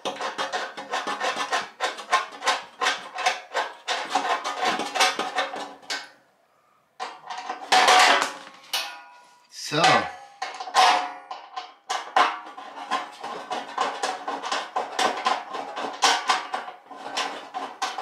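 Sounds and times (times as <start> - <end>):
screwdriver rasping scrape: 0.0 - 5.5.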